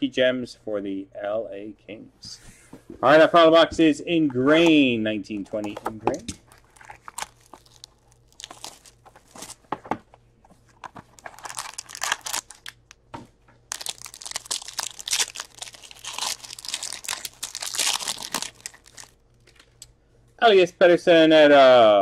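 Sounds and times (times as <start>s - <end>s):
foil wrapper crinkling and tearing: 6.4s - 9.6s, 10.7s - 12.9s, 13.7s - 19.7s.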